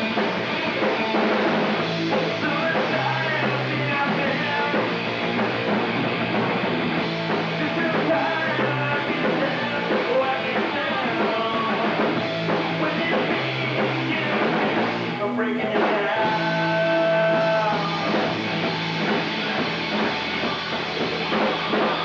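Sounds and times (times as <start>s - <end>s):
drum kit: 0.0s - 22.0s
electric bass: 0.0s - 22.0s
electric guitar: 0.0s - 22.0s.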